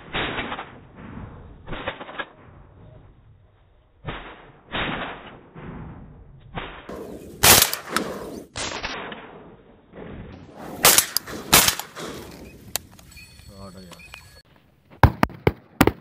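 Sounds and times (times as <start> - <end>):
shotgun shots: 4.1 - 5.9, 6.5 - 12.7, 15.0 - 16.0.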